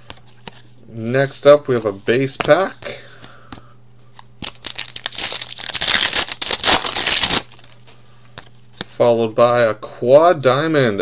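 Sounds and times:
wrapper crinkling and tearing: 4.4 - 7.8.

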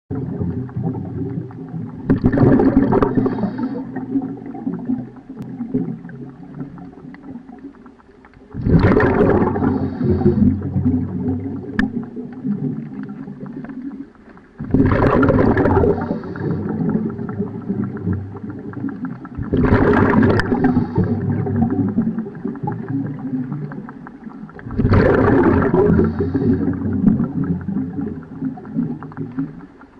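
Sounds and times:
exhaled bubbles underwater: 0.1 - 29.9
low steady underwater rumble: 0.1 - 29.9.

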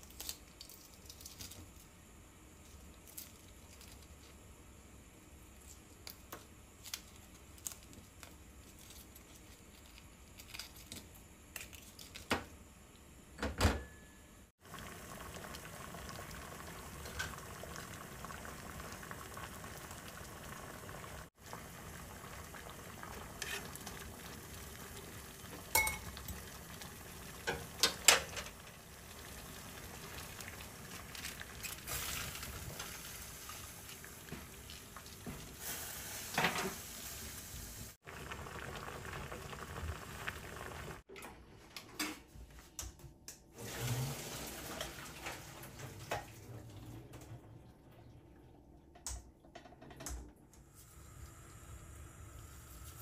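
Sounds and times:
pot boiling and bubbling: 14.5 - 41.1, 43.6 - 53.0
utensils clinking on cookware: 25.6 - 26.4
utensils and cookware clicking: 27.4 - 28.6.

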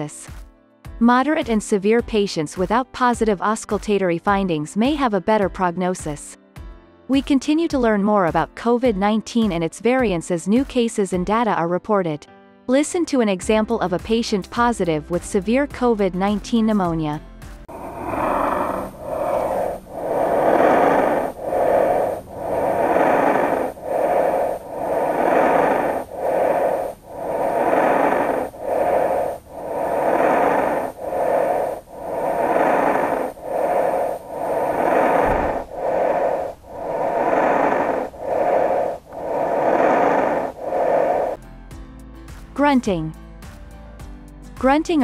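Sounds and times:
rapid breathing lung sounds: 17.7 - 41.4.

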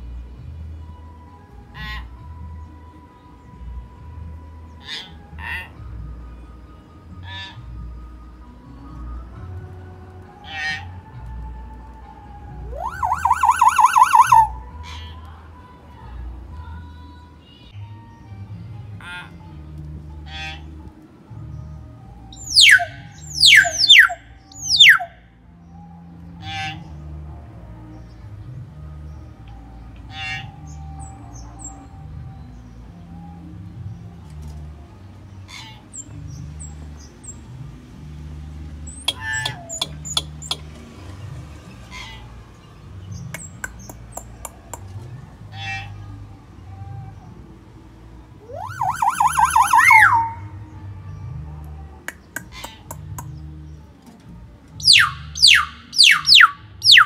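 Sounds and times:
bird whistled notes: 12.7 - 14.5, 22.3 - 25.1, 38.9 - 40.7, 48.4 - 50.6, 54.8 - 57.0
hill myna whistles falling in pitch: 12.7 - 14.5, 22.4 - 25.1
bird harsh rasping calls: 12.8 - 15.0, 22.4 - 25.1, 38.9 - 40.8, 41.8 - 42.4, 43.2 - 44.9, 48.6 - 50.6, 52.1 - 53.3, 54.8 - 57.0.

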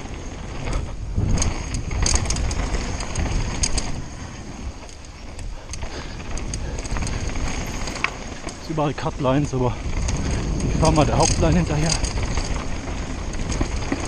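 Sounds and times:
bike rattling over bumps: 0.0 - 14.0
wind and ground rumble: 0.0 - 14.0.

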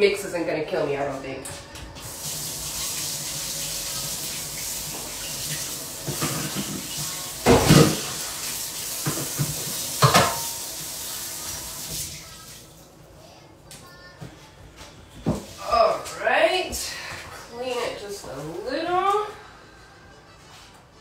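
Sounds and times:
sink tap running: 2.1 - 12.5.

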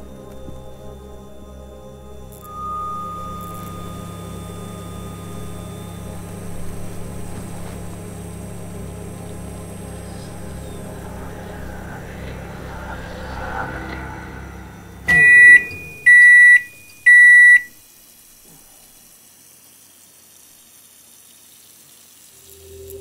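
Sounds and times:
low droning hum: 0.0 - 17.1, 22.4 - 23.0
thin high tone: 2.2 - 17.8.

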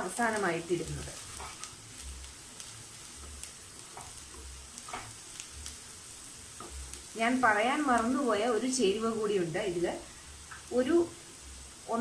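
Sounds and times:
onions sizzling in a pan: 0.0 - 12.0
wooden spatula scraping a pan: 0.8 - 5.5.

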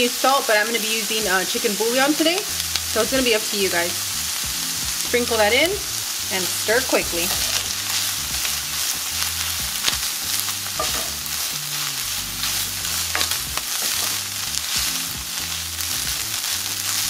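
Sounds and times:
chicken sizzling in a skillet: 0.0 - 17.0
wooden spoon scraping a pan: 6.7 - 8.5, 10.4 - 14.9.

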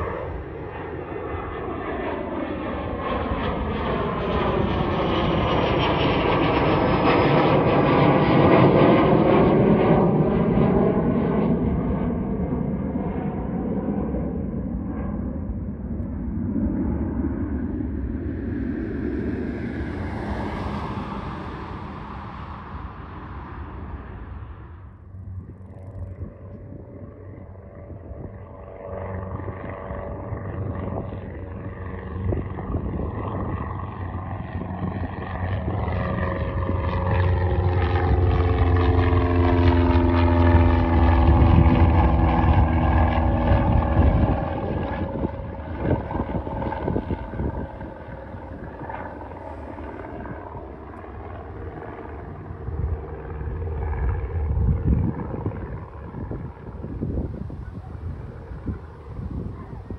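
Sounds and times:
distant aircraft rumble: 0.0 - 59.9
propeller plane passing overhead: 0.0 - 59.9.

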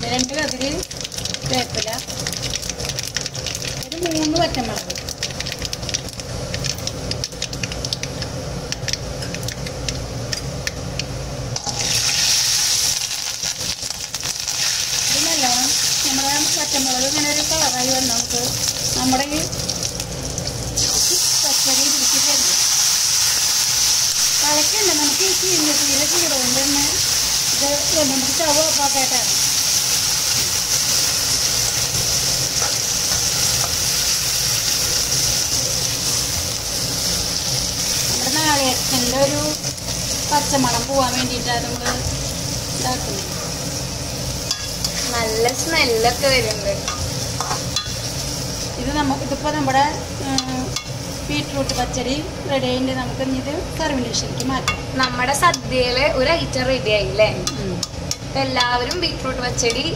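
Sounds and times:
seeds popping in hot oil: 0.0 - 36.3, 44.4 - 51.9, 57.3 - 59.9
oil hissing sizzle: 0.0 - 59.9.

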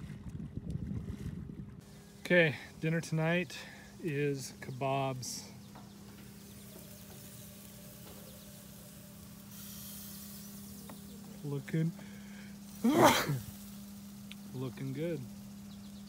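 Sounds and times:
steady low hum: 0.0 - 16.0
kebabs sizzling on a grill: 1.8 - 16.0
loud vocal burst: 12.7 - 13.6.

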